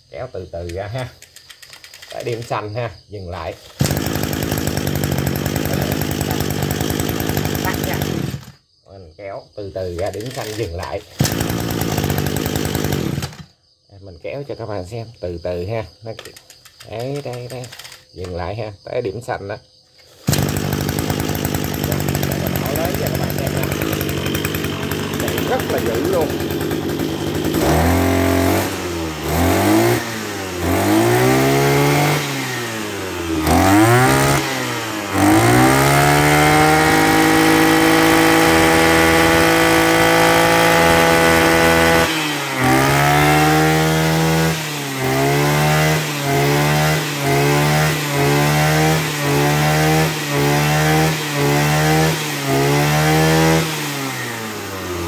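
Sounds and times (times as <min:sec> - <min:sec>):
brush cutter engine revving: 0:00.6 - 0:02.7, 0:03.4 - 0:08.6, 0:09.9 - 0:13.5, 0:16.2 - 0:18.4, 0:20.0 - 0:55.0.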